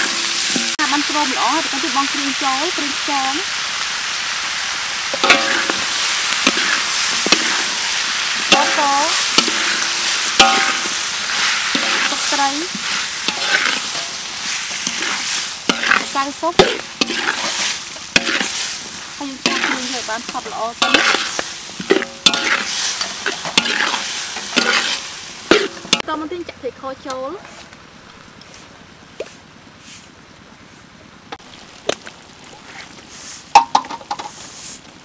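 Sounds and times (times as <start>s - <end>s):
metal spatula scraping wok: 0.0s - 3.5s, 5.0s - 26.1s
onions sizzling in oil: 0.0s - 27.2s, 31.4s - 35.0s.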